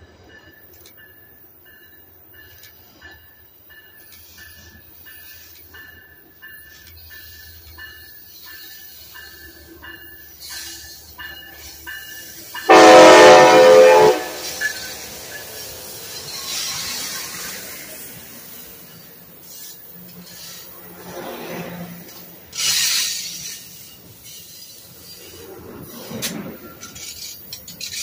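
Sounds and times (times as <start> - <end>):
locomotive bell pinging: 0.0 - 16.9
train cars rumbling past: 0.0 - 28.0
train horn blast: 12.6 - 14.7.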